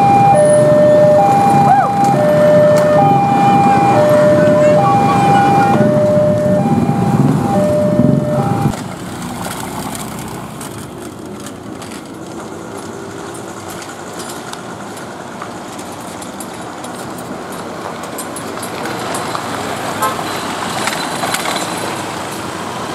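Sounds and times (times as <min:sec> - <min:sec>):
level crossing two-tone alarm: 0:00.0 - 0:08.8
distant freight train rumble: 0:00.0 - 0:09.4
motorcycles idling: 0:00.0 - 0:21.0.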